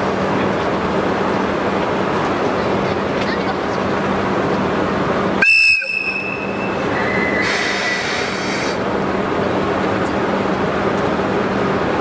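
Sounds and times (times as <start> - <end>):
low hum of locomotive: 0.0 - 12.0
steel wheels squealing on rail: 5.4 - 8.8.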